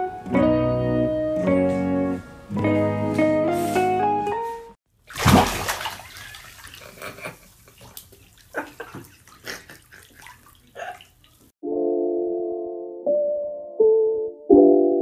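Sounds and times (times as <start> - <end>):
piano music: 0.0 - 4.8, 11.6 - 15.0
water running into bathtub: 4.9 - 11.5.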